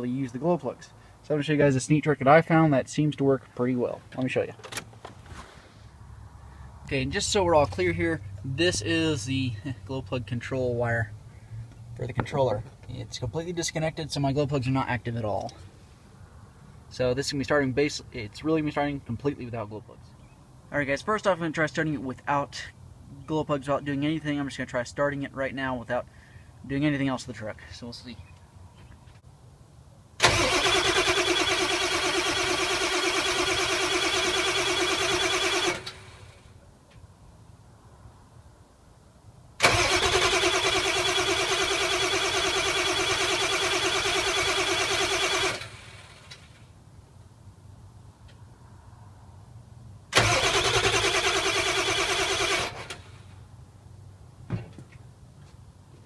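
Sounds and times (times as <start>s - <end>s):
diesel engine cranking on starter: 30.2s - 36.5s, 39.6s - 46.7s, 50.1s - 53.4s
short thump: 54.4s - 55.0s.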